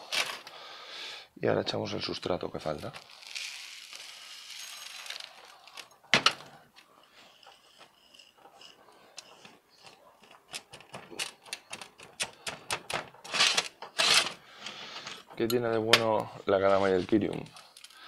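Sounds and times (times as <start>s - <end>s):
granular soil clicking and rattling: 7.4s - 18.0s.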